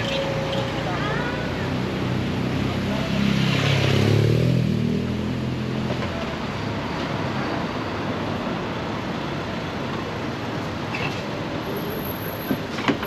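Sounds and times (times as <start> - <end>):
street background: 0.0 - 13.0
vehicle engine passing by: 1.6 - 5.9.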